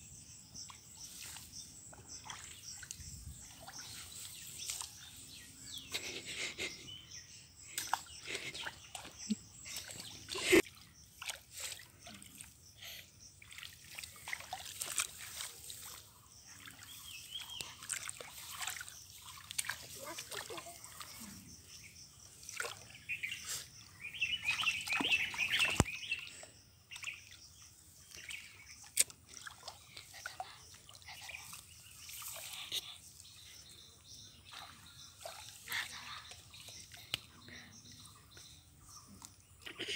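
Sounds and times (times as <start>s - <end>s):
hands splashing in muddy water: 13.4s - 21.2s, 24.4s - 26.1s.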